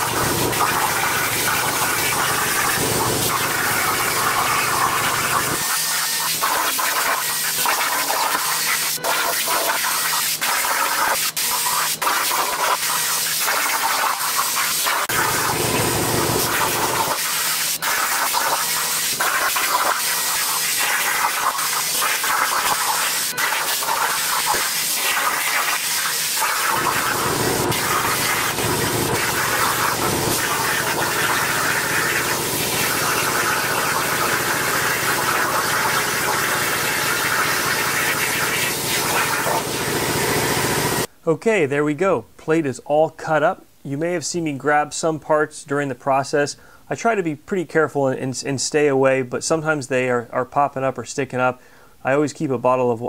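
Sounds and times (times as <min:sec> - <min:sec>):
plasma torch hissing: 0:00.0 - 0:41.1.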